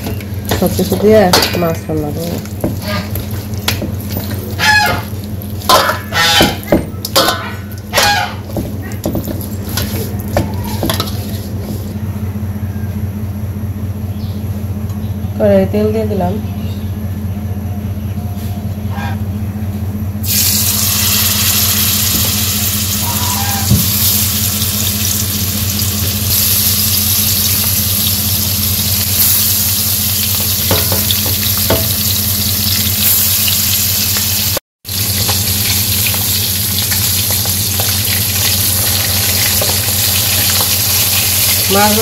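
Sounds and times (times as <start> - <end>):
steady low hum: 0.0 - 33.3
fish sizzling in hot oil: 20.2 - 23.0, 23.8 - 42.0.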